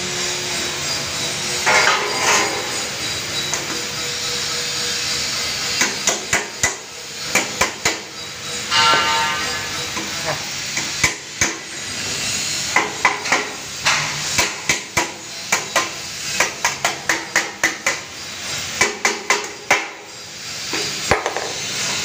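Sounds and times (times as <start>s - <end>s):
hammer striking sheet metal: 1.6s - 2.8s, 8.7s - 11.6s.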